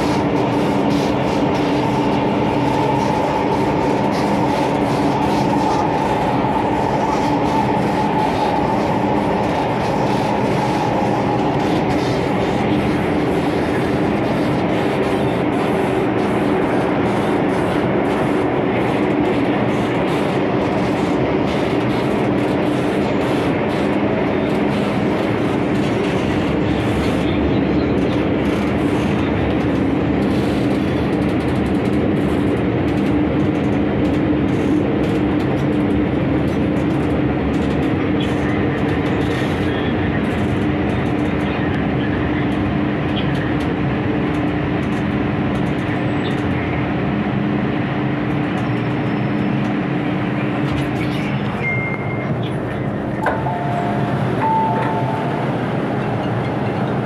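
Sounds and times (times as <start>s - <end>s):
train wheels on rails: 0.0s - 57.0s
steady electric hum: 52.2s - 57.0s.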